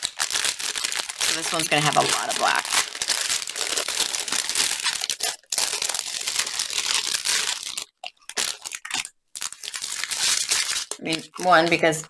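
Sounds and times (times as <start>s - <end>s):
plastic and foil crinkling: 0.0s - 12.0s.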